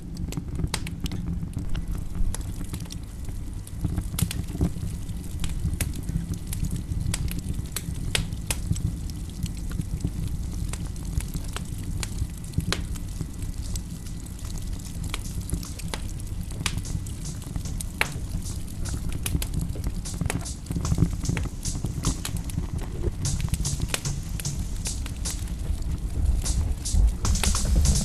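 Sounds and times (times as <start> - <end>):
crackles and clicks: 0.0 - 28.0
steady low rumble: 13.1 - 28.0.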